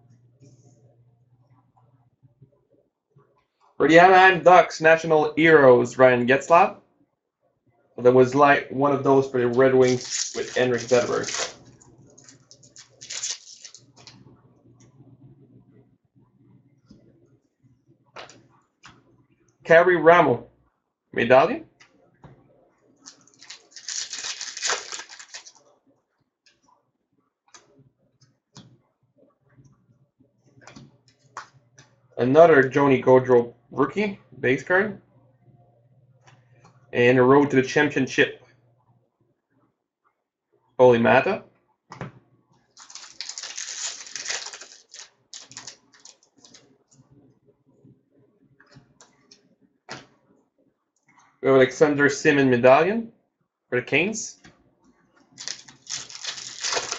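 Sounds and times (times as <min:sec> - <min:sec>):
cards flicking: 0:09.8 - 0:11.7
foil wrapper crinkling and tearing: 0:09.8 - 0:14.2, 0:23.0 - 0:25.6, 0:42.8 - 0:46.6, 0:55.4 - 0:56.9.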